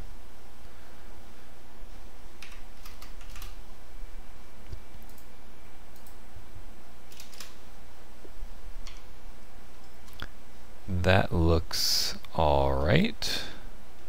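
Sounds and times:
low background hum: 0:00.0 - 0:14.0
computer mouse clicks: 0:02.4 - 0:03.6, 0:04.6 - 0:05.3, 0:05.9 - 0:06.2, 0:07.1 - 0:07.6, 0:08.8 - 0:09.1
keyboard key presses: 0:02.4 - 0:03.6.

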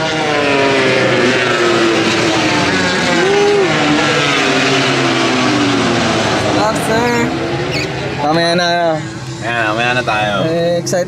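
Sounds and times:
racing motorcycles at high revs: 0:00.0 - 0:11.0.

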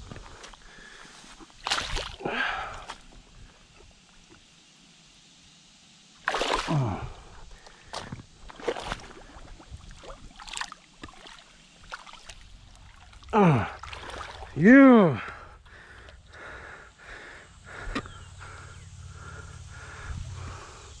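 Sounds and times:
water splashing: 0:01.4 - 0:03.2, 0:06.2 - 0:15.0.

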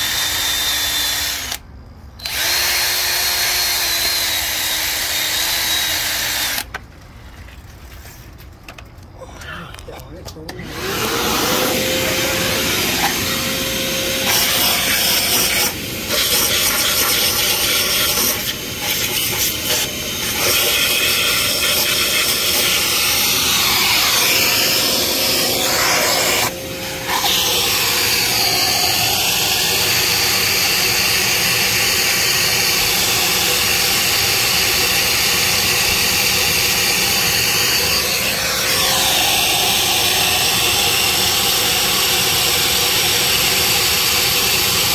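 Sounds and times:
rotary tool scrubbing metal: 0:10.7 - 0:29.7.

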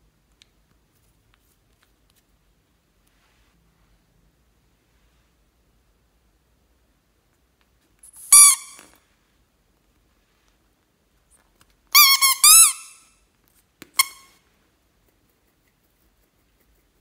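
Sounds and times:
squeeze toy squeaking: 0:08.0 - 0:09.0, 0:11.9 - 0:13.1, 0:13.9 - 0:14.4.

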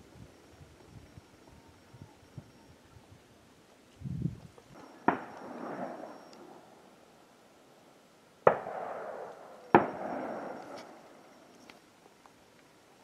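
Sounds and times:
gunshots with rolling echo: 0:04.8 - 0:06.9, 0:08.4 - 0:11.4.

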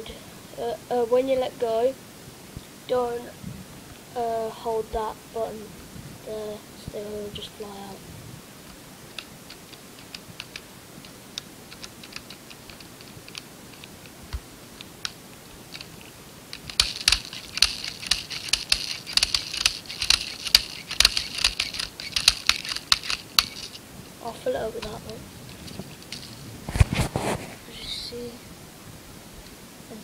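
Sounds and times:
plastic pellets clicking: 0:14.8 - 0:23.8, 0:24.8 - 0:26.4.

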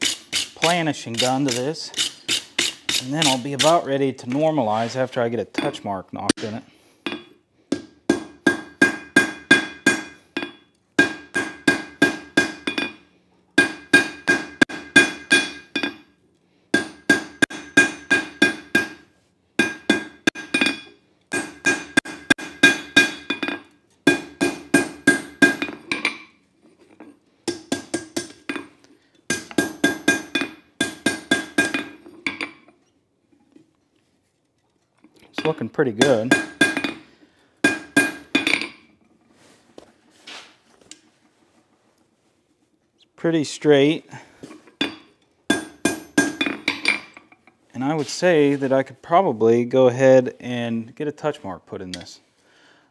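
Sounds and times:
hammer ringing on anvil: 0:13.6 - 0:16.0, 0:16.8 - 0:19.0, 0:19.6 - 0:25.8.

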